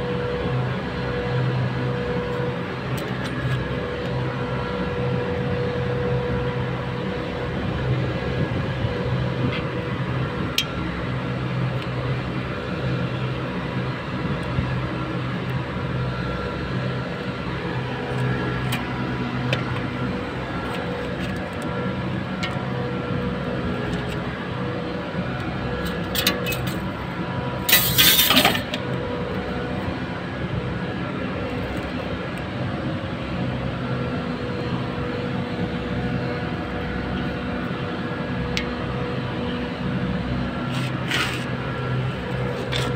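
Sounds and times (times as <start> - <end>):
machinery humming: 0.0 - 42.9.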